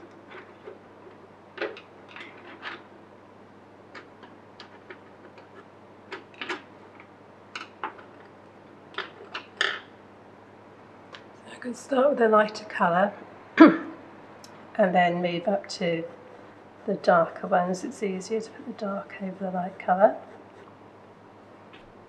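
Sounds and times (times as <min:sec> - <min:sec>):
pencils clicking on table: 0:04.0 - 0:08.2.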